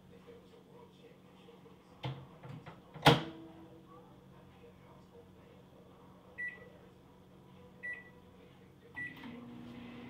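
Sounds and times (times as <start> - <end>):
microwave oven humming: 5.6 - 10.0
microwave oven beeping: 6.4 - 6.7, 7.8 - 8.2, 9.0 - 10.0.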